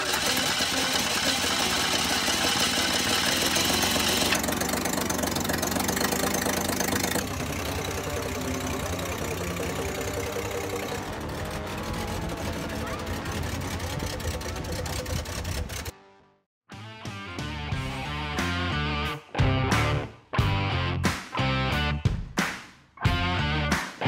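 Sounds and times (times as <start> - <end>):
car engine running: 0.0 - 15.9.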